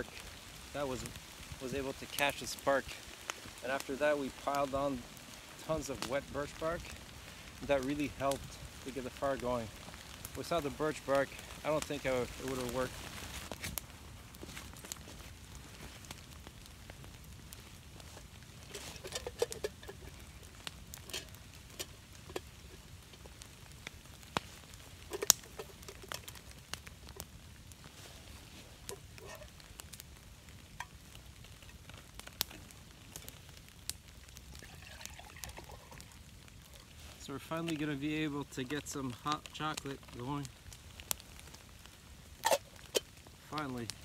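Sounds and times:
campfire crackling and popping: 0.0s - 44.0s
low steady hiss: 0.0s - 44.0s
water pouring into cup: 34.6s - 36.1s.

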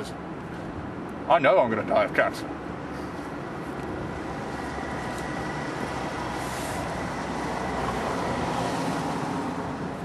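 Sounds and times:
road traffic noise: 0.0s - 10.0s.

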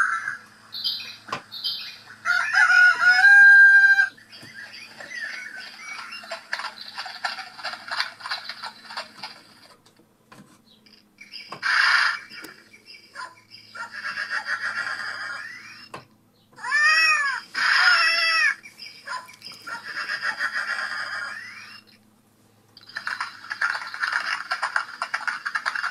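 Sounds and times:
scratchy animal noises: 4.6s - 9.8s, 22.8s - 25.9s.

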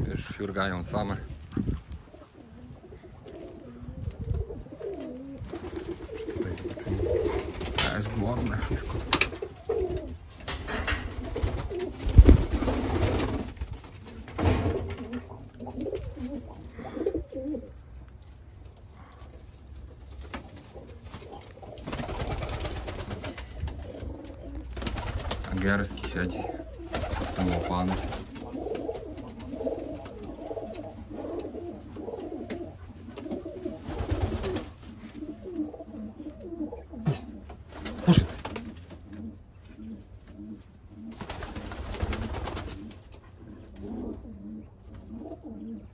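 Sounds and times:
pigeons cooing: 2.0s - 18.0s, 18.8s - 45.9s
wings fluttering: 4.1s - 16.4s, 20.0s - 31.6s, 33.2s - 35.3s, 37.7s - 38.9s, 41.1s - 43.1s.

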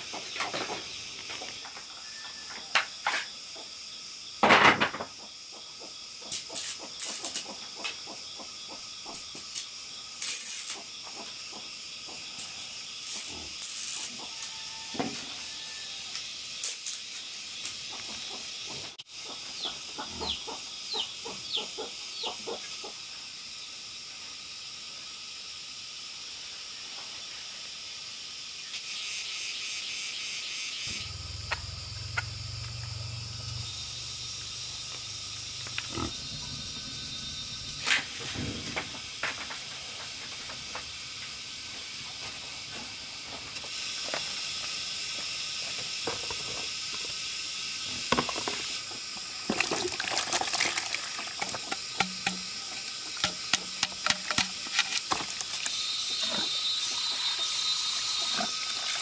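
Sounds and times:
insects chirping: 0.0s - 59.0s
low hum: 30.9s - 39.0s.

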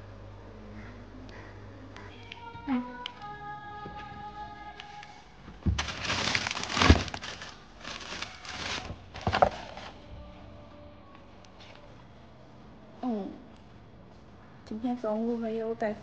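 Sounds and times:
plastic bags rustling: 5.6s - 10.0s.

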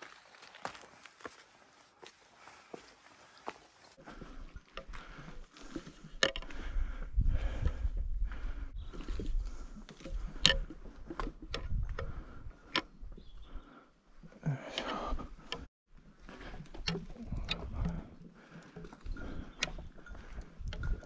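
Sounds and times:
footsteps on rocky path: 0.0s - 12.7s.

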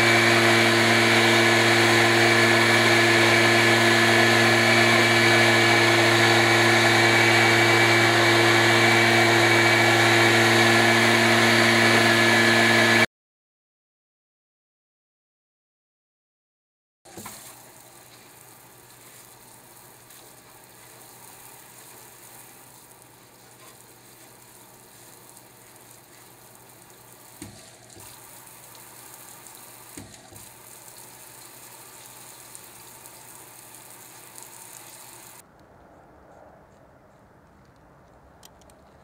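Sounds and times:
water spraying on a screen: 0.0s - 10.2s, 17.1s - 35.4s.

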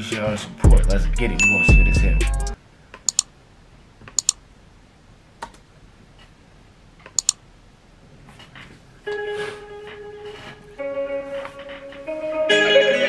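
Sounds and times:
sharp clicks: 2.2s - 3.3s, 4.1s - 4.4s, 7.1s - 7.4s
faint music with held notes: 9.0s - 13.0s.

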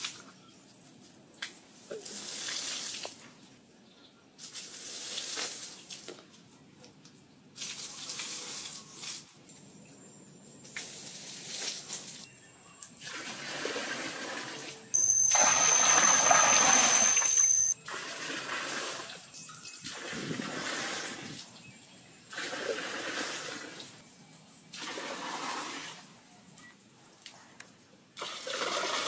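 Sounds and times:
water pouring into pool: 13.0s - 19.3s, 19.9s - 21.4s, 22.3s - 24.0s, 24.8s - 26.0s, 28.2s - 29.0s.

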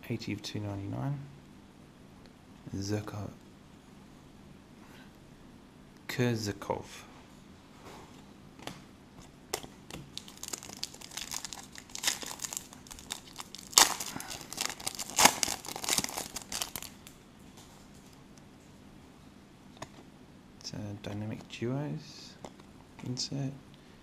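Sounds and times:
wrapper crinkling: 9.5s - 17.2s
foil pack tearing: 10.2s - 17.1s.

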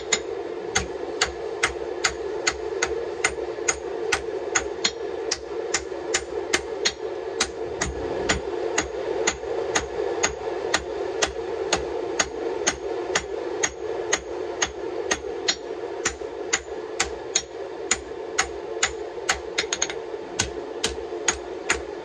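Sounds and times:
steady drone: 0.0s - 16.5s.

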